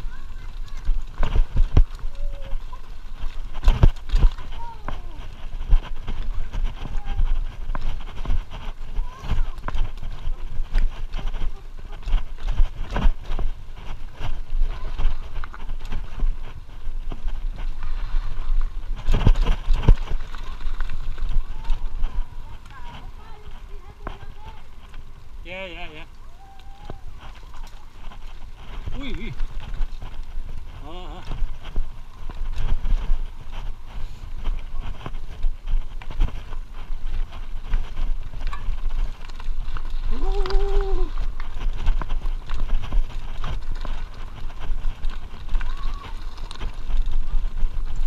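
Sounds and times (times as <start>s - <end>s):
bike knocks and rattles: 0.0s - 25.7s
wind buffeting microphone: 0.0s - 48.0s.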